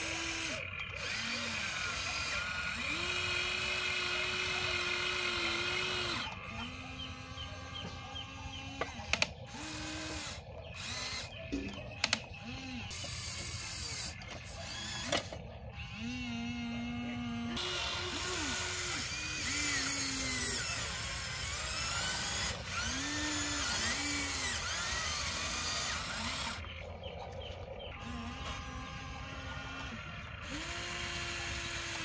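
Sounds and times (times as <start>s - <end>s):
electric motors whining: 0.0s - 32.0s
sharp clicks: 8.7s - 15.4s.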